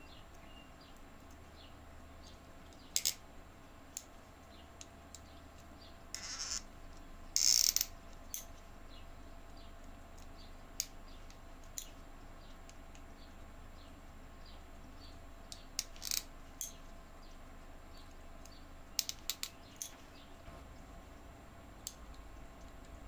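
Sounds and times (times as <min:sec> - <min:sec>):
low electrical hum: 0:00.0 - 0:23.0
sharp light metal clicks: 0:09.5 - 0:13.2, 0:15.5 - 0:16.8, 0:18.0 - 0:20.2, 0:21.8 - 0:23.0.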